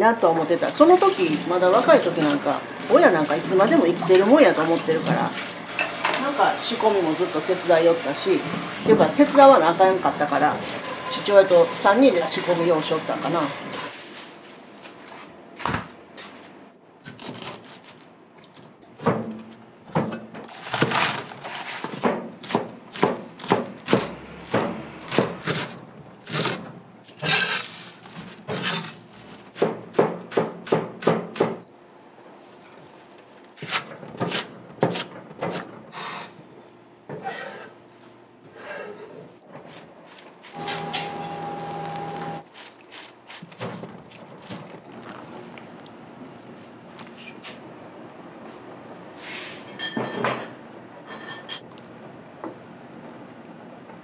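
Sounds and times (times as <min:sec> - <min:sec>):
knife chopping on cutting board: 0:21.8 - 0:26.6, 0:29.5 - 0:31.6, 0:33.6 - 0:35.7.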